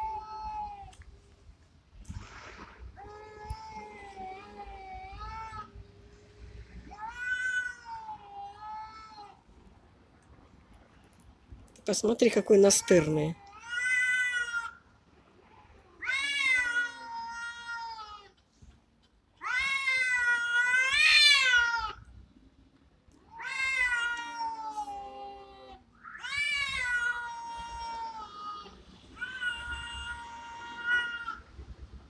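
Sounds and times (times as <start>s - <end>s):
cats yowling: 6.9s - 9.4s, 13.0s - 14.8s, 15.9s - 18.3s, 19.4s - 22.0s, 23.3s - 31.4s.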